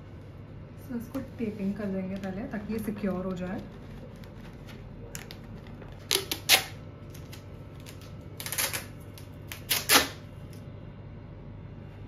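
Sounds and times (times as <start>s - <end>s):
packing tape ripping off roll: 6.0s - 10.6s.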